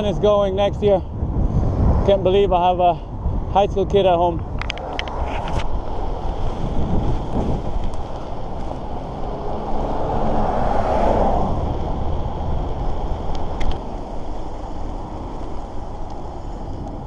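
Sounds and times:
bike tyres rolling on pavement: 0.0s - 17.0s
wind buffeting microphone: 0.0s - 17.0s
vehicle passing: 4.7s - 17.0s.

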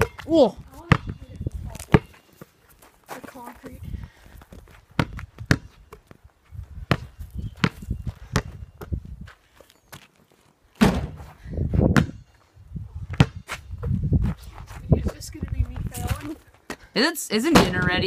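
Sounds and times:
basketball bouncing on concrete: 0.0s - 2.2s, 4.4s - 6.2s, 6.8s - 9.0s, 10.8s - 12.2s, 13.1s - 14.1s
sharp thump: 10.8s - 11.2s.

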